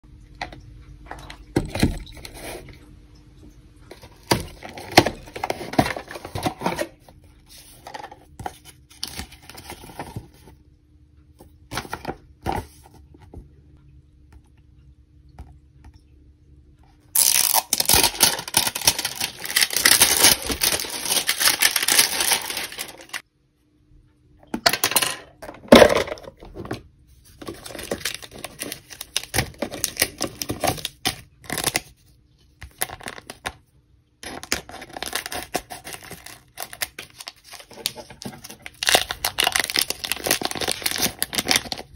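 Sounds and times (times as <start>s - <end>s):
foil sachet crinkling: 17.2s - 23.2s, 27.2s - 32.0s, 34.2s - 41.9s
wrapping crinkling and tearing: 17.2s - 23.2s, 27.2s - 32.0s, 34.2s - 41.9s.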